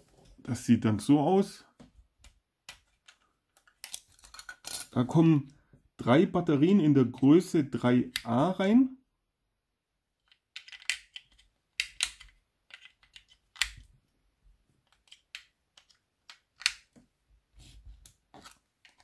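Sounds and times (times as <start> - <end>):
plastic parts clicking and tapping: 1.8 - 5.0, 10.2 - 13.9, 14.8 - 17.1, 18.0 - 19.0.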